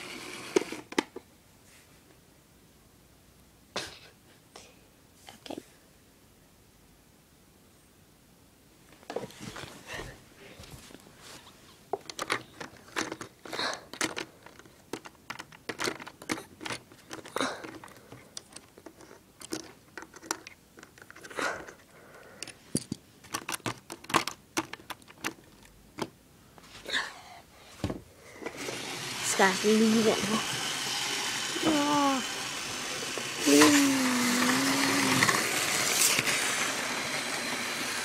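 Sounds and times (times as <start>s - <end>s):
plastic toy bricks clicking: 12.0s - 21.4s, 22.4s - 26.1s.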